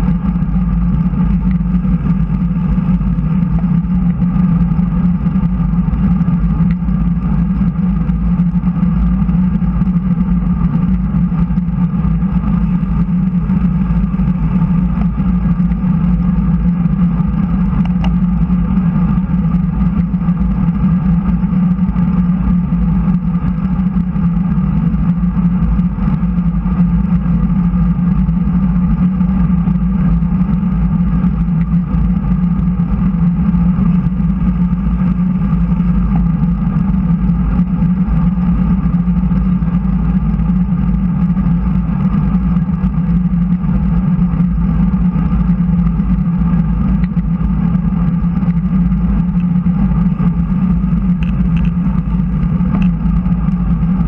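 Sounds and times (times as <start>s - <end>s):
bicycle tyre noise: 0.0s - 54.0s
constant low drone: 0.0s - 54.0s.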